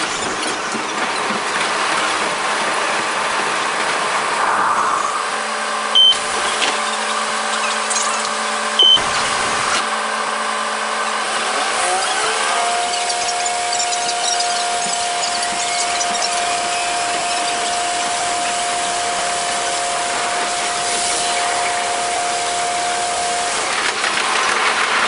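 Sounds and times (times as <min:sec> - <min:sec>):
short high beeps: 0:06.0 - 0:06.2
diesel railcar engine hum: 0:12.7 - 0:25.0.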